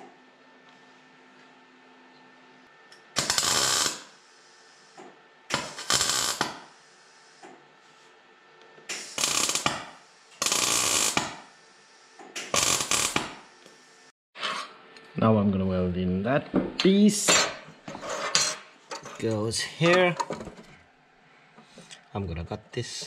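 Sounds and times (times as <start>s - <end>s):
welder arc crackling: 3.2s - 4.9s, 5.5s - 6.9s, 8.9s - 11.6s, 12.4s - 14.1s.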